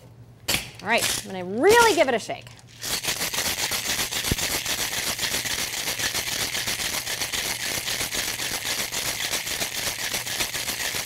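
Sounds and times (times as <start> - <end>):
ice rattling in metal shaker: 2.7 - 11.0.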